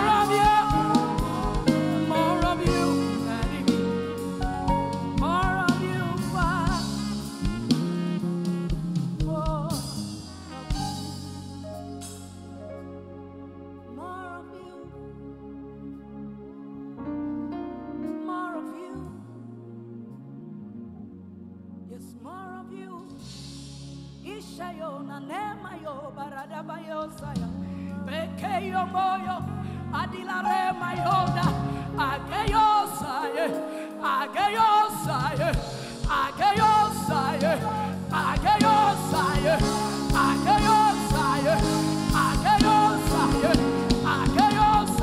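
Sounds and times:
person singing: 0:00.0 - 0:11.8, 0:24.4 - 0:45.0
band accompaniment: 0:00.0 - 0:13.0, 0:30.8 - 0:33.0, 0:34.0 - 0:45.0.

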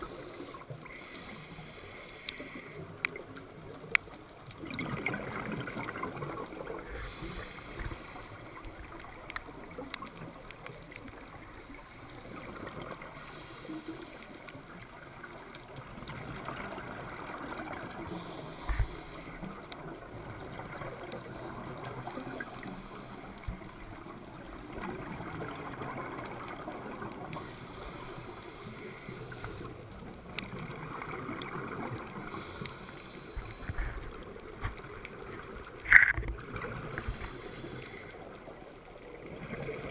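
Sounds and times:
diver breathing through regulator: 0:00.0 - 0:02.9, 0:06.9 - 0:08.6, 0:13.1 - 0:14.5, 0:18.0 - 0:19.6, 0:21.1 - 0:23.6, 0:27.3 - 0:29.9, 0:32.2 - 0:34.2, 0:36.8 - 0:38.3
exhaled bubbles bursting: 0:04.6 - 0:06.9.

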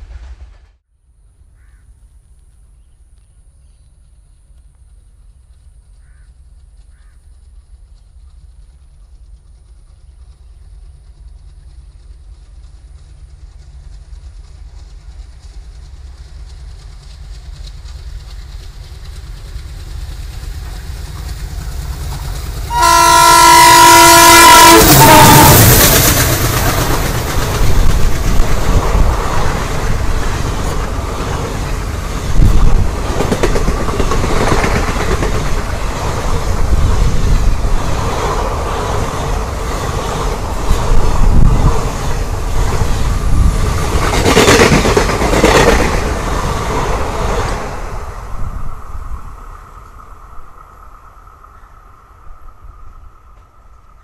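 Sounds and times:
diesel locomotive engine rumble: 0:00.0 - 0:54.0
train wheels clattering on rails: 0:04.0 - 0:47.7
locomotive horn blast: 0:22.7 - 0:26.0.

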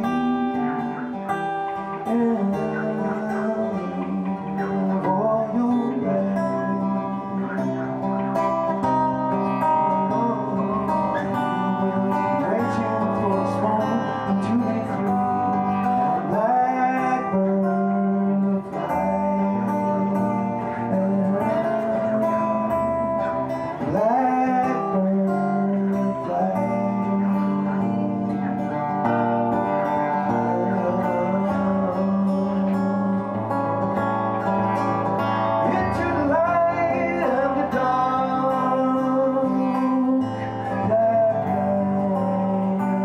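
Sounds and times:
acoustic guitar: 0:00.0 - 0:43.0
man singing: 0:00.0 - 0:43.0.

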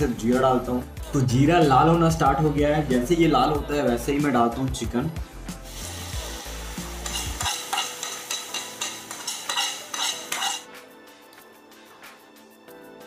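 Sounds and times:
chicken sizzling in a pan: 0:05.6 - 0:10.7
wooden spatula scraping and stirring: 0:07.0 - 0:10.7.

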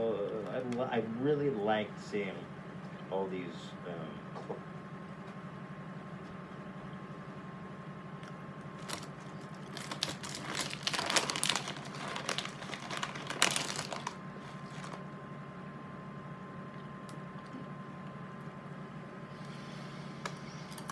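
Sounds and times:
plastic bag crinkling: 0:08.7 - 0:15.1.

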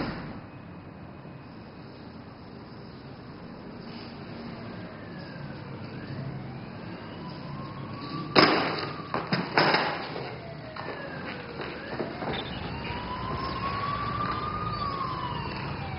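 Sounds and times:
sirens wailing: 0:03.3 - 0:15.9.

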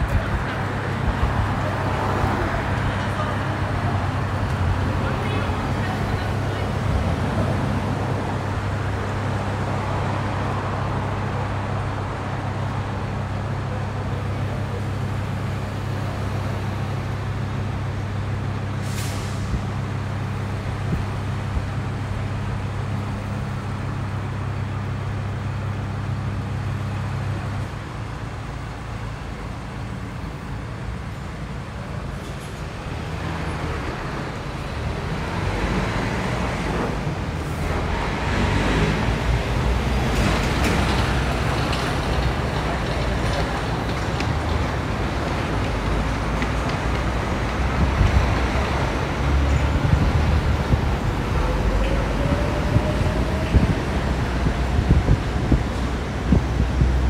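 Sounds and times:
road traffic: 0:00.0 - 0:57.0
air brake hiss: 0:18.8 - 0:19.6.

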